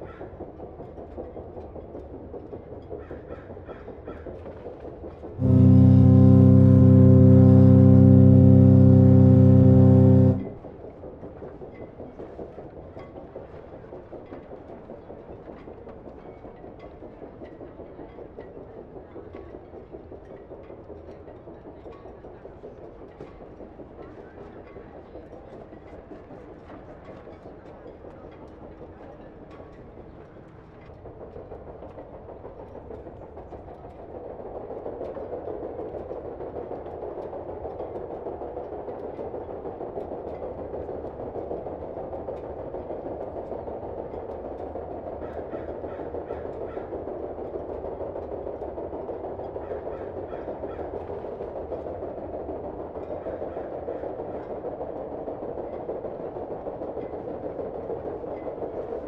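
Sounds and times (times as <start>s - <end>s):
steam engine chugging: 0.2s - 13.2s.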